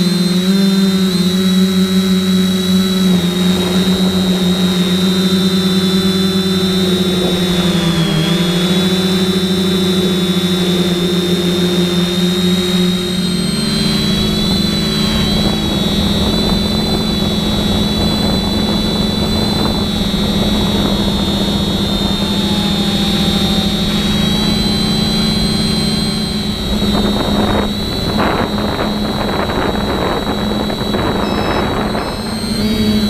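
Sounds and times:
drone motors and propellers whining: 0.0s - 33.0s.

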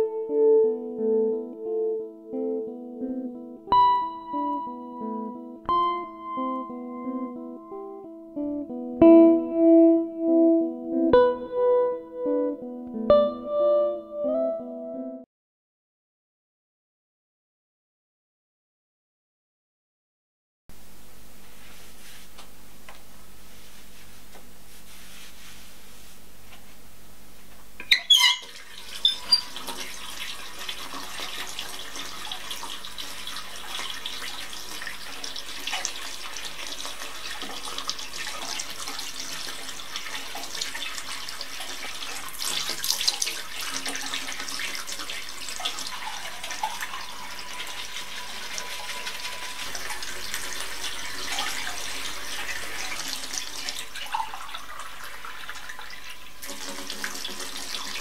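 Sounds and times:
faucet opening: 27.8s - 30.1s
water running from tap: 27.8s - 58.0s.

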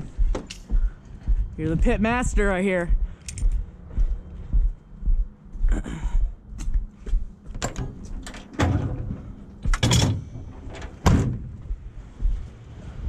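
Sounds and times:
compartment doors knocking shut: 7.6s - 11.6s.

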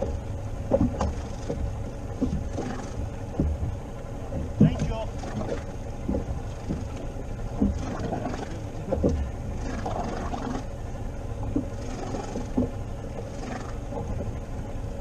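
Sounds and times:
dull knocks on boat hull: 0.0s - 8.1s
sea noise: 0.0s - 15.0s
wind: 0.0s - 15.0s.

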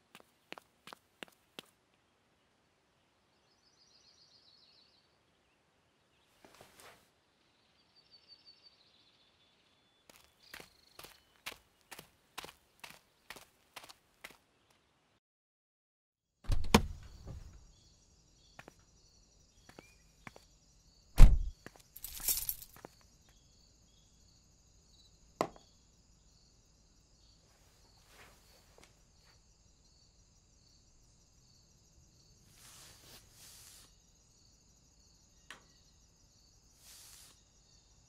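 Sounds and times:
short hiss: 36.8s - 37.4s.

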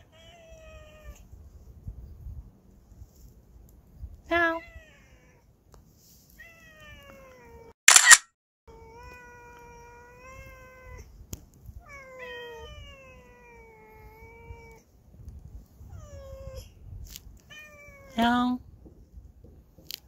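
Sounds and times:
cats meowing: 8.7s - 11.1s, 11.8s - 14.8s, 17.4s - 18.2s.

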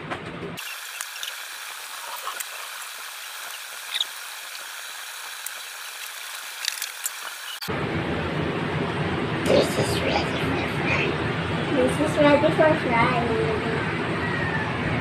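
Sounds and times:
steady hiss: 0.6s - 7.7s.

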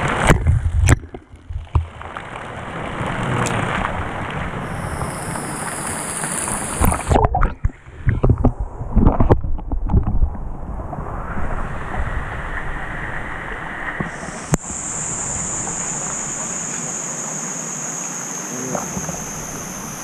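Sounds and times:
water splashing: 0.0s - 20.0s
waterfall rushing: 2.4s - 7.2s, 13.7s - 20.0s.

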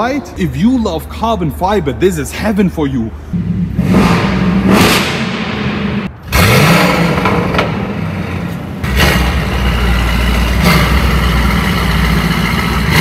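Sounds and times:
car engine revving: 3.3s - 13.0s.

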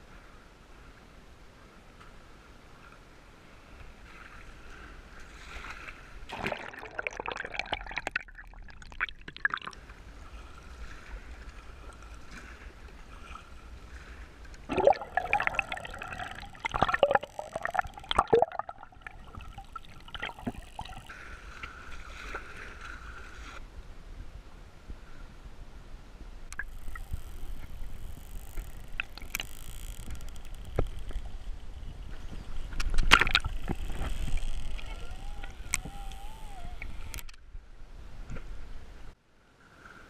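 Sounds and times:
water splashing and sloshing: 3.8s - 23.6s, 26.5s - 37.4s
underwater gurgling: 6.2s - 12.3s, 14.6s - 21.2s, 26.6s - 31.7s, 32.9s - 37.3s
dolphins clicking: 14.5s - 21.2s, 26.5s - 31.8s, 32.6s - 37.4s.

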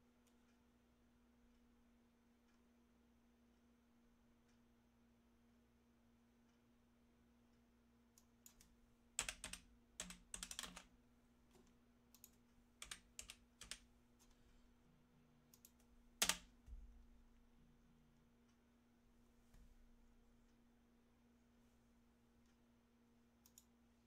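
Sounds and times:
typing on computer keyboard: 8.4s - 10.9s, 12.2s - 13.8s, 15.6s - 16.6s.

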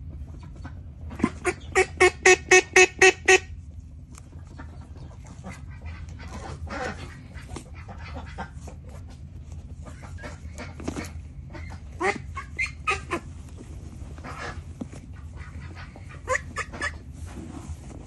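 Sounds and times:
duck quacking: 1.1s - 3.5s, 4.6s - 8.9s, 9.8s - 13.3s, 14.2s - 14.6s, 15.2s - 17.1s.

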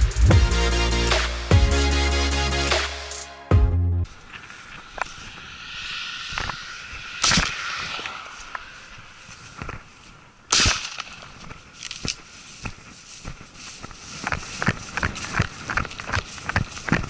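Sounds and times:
shotgun shot: 10.5s - 11.2s
footsteps running over grass: 11.1s - 17.0s.

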